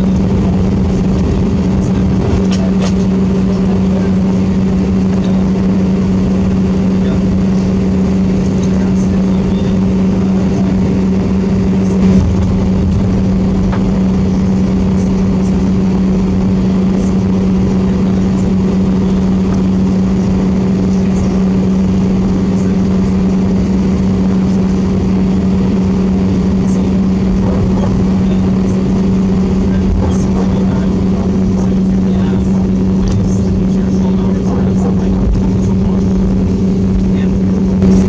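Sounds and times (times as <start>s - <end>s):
aircraft engine drone: 0.0s - 38.0s
high tone: 11.7s - 16.7s.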